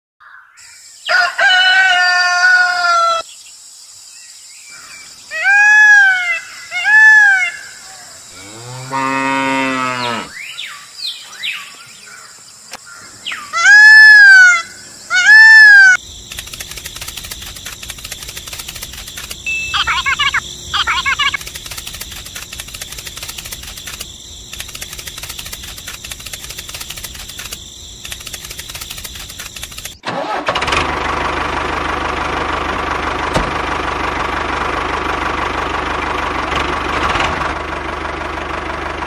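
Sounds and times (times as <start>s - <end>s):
higher animal calls: 5.3s - 10.5s, 13.4s - 16.0s, 19.4s - 22.0s
cow mooing: 8.3s - 10.4s
rapid buzzing: 16.0s - 30.0s.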